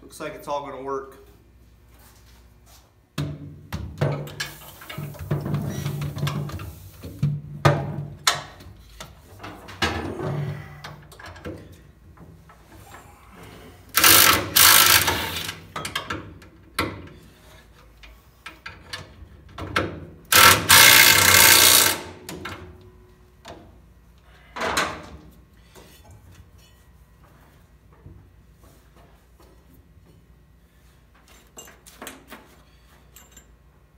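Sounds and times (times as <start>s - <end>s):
cordless power tool bursts: 14.0s - 15.6s, 20.3s - 22.1s.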